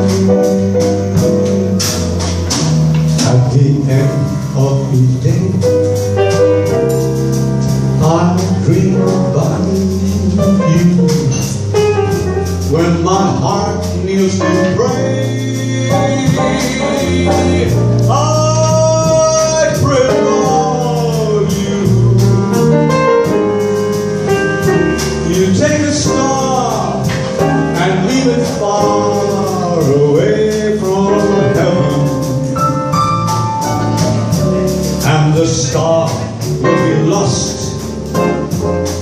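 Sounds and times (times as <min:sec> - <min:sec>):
drums: 0:00.0 - 0:39.0
piano: 0:00.0 - 0:39.0
upright bass: 0:00.0 - 0:39.0
man singing into a microphone: 0:03.2 - 0:05.8, 0:08.0 - 0:11.7, 0:12.7 - 0:22.7, 0:25.1 - 0:32.6, 0:35.0 - 0:37.9.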